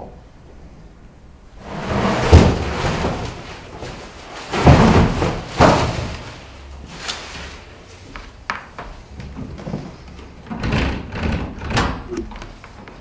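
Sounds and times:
packaging thuds and scrapes: 1.6 - 7.7.

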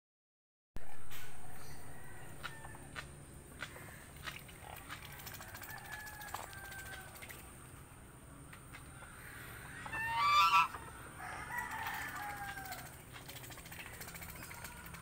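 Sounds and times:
piglets squeaking: 9.8 - 10.8.

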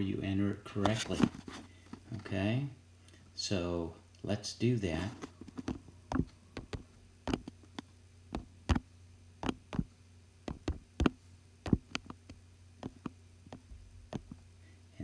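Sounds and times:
steady low hum: 0.0 - 15.0
on-screen keyboard taps: 5.6 - 7.5, 9.4 - 9.9, 10.5 - 14.4.

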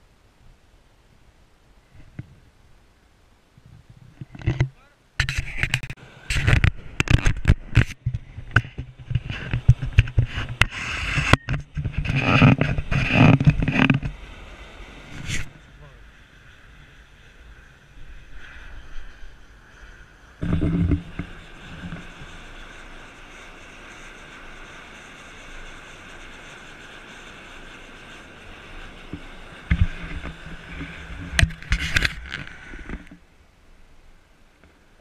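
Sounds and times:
steam vent hissing: 12.2 - 33.0.

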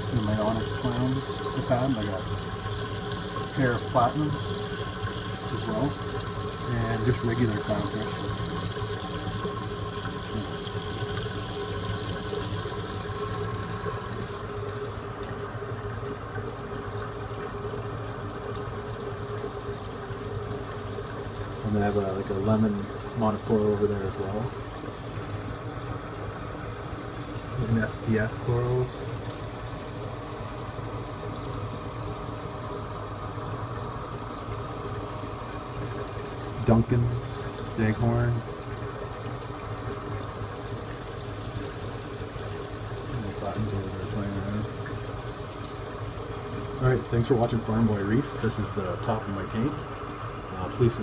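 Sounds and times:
hiss of moving water: 0.0 - 15.1, 33.1 - 51.0
electric pump humming: 0.0 - 51.0.

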